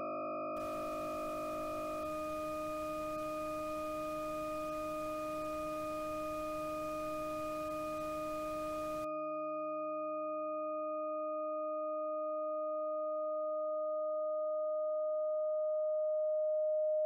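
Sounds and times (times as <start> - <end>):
faint hiss: 0.6 - 9.1
synthetic steady tone: 0.6 - 9.1.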